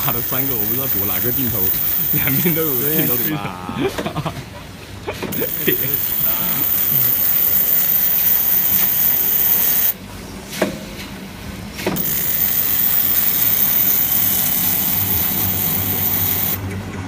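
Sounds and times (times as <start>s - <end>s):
printing machine hissing and humming: 0.0s - 3.8s, 5.3s - 10.0s, 11.6s - 16.7s.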